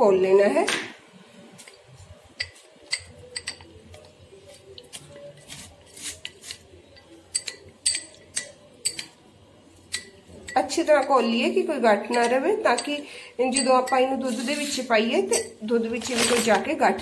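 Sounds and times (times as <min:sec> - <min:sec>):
metal spoon clinking glass bowl: 0:02.4 - 0:04.1, 0:06.9 - 0:09.2, 0:09.9 - 0:11.2, 0:12.0 - 0:14.6, 0:15.3 - 0:15.6.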